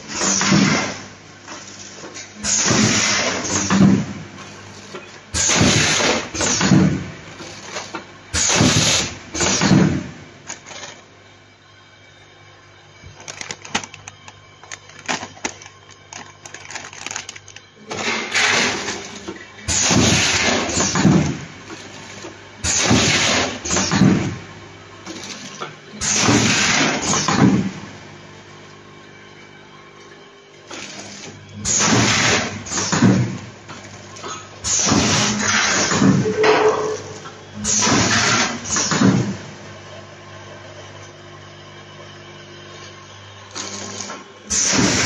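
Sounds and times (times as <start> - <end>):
packing machine clattering and hissing: 0.0 - 11.1, 13.0 - 28.0, 30.5 - 39.7, 42.7 - 45.0.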